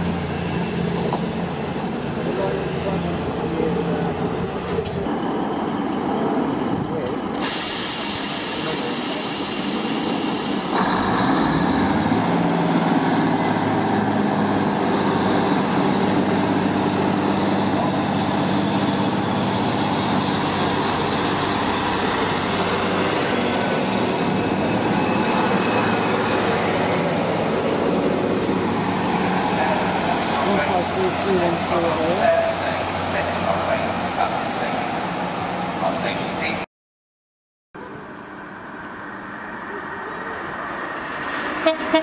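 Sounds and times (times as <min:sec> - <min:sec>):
train diesel engine running: 0:00.0 - 0:36.2
air hissing: 0:07.4 - 0:10.8.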